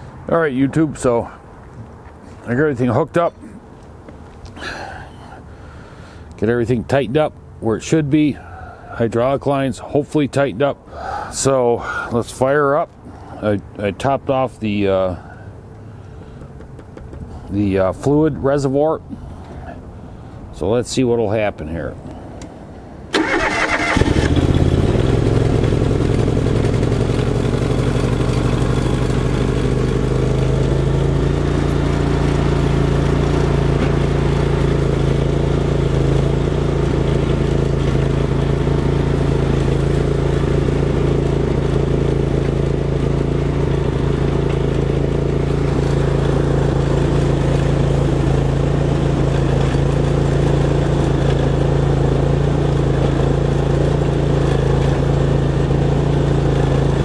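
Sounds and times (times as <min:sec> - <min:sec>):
lawn tractor engine starting: 0:23.1 - 0:57.0.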